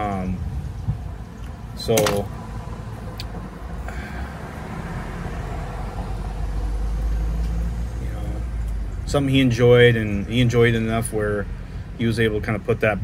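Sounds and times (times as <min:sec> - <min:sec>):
vehicle passing rumble: 0:00.0 - 0:13.0.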